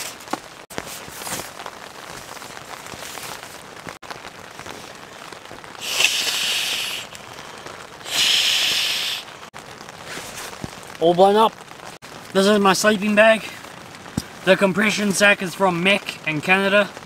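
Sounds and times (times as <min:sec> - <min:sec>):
rain pattering on a tent: 0:00.0 - 0:17.0
breaths blown into a valve: 0:05.8 - 0:09.3.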